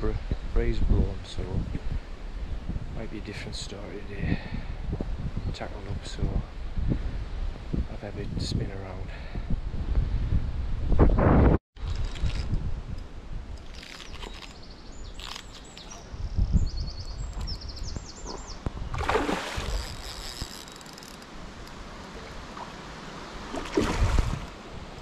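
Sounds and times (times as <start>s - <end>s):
wind on microphone: 0.0s - 25.0s
bird chirping: 13.8s - 18.9s
lure splashing in water: 18.2s - 24.6s.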